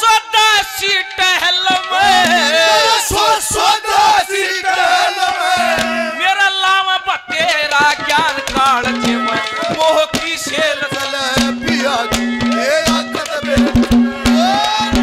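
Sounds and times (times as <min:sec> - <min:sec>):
ornamented melody: 0:01.4 - 0:03.4, 0:05.4 - 0:06.3, 0:07.4 - 0:15.0
hand drum beats: 0:01.5 - 0:03.4, 0:05.2 - 0:06.3, 0:07.3 - 0:15.0.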